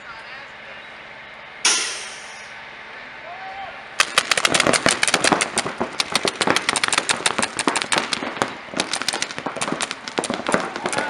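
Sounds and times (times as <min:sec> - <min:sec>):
paintball markers firing: 0:04.0 - 0:11.0.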